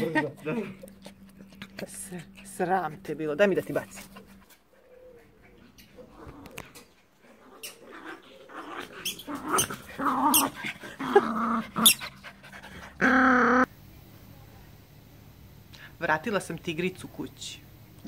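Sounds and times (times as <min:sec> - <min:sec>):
small dogs barking and growling: 0:00.0 - 0:13.7
dog snarling: 0:05.9 - 0:13.7.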